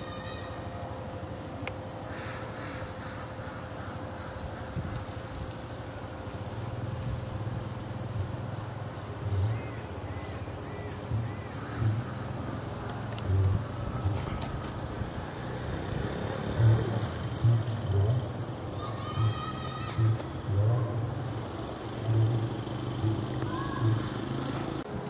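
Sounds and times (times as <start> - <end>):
insects chirping: 0.0 - 25.0
low thumps: 16.6 - 18.4.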